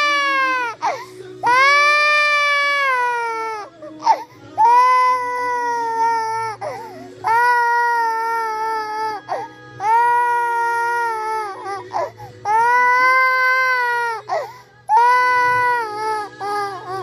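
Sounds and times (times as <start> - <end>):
toddler crying: 0.0 - 17.0
sharp gasping breath: 0.8 - 1.3, 6.6 - 7.2, 14.3 - 14.8.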